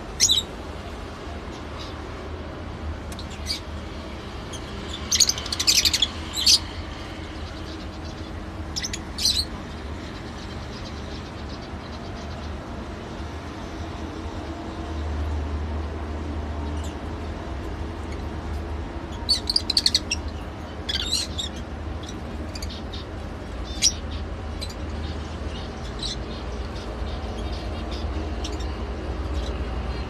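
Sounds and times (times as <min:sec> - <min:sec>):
lovebirds chirping: 0:20.8 - 0:30.0.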